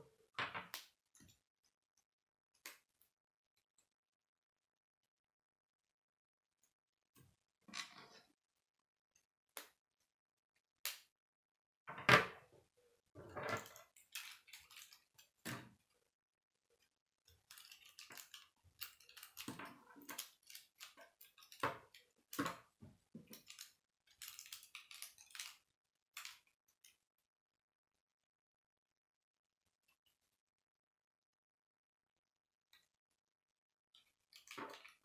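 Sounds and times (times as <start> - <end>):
plastic pieces clicking and rattling: 13.6 - 15.7, 17.3 - 27.0, 34.2 - 35.0.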